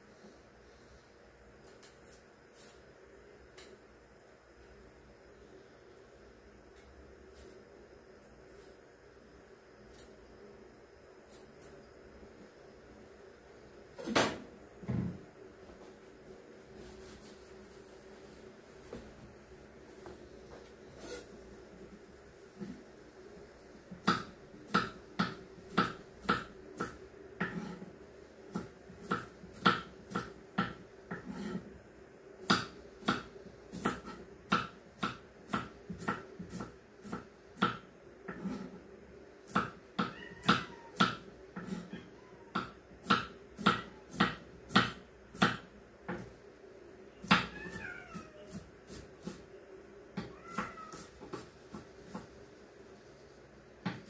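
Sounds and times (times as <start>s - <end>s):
knife chopping on wooden board: 24.0s - 27.8s, 28.5s - 31.6s, 32.4s - 38.7s, 39.5s - 41.9s, 42.6s - 46.3s, 50.2s - 52.3s.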